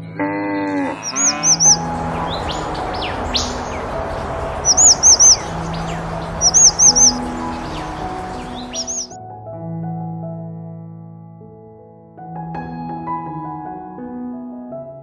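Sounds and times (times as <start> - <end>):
background music: 0.0 - 9.4
small bird chirping: 1.0 - 9.2.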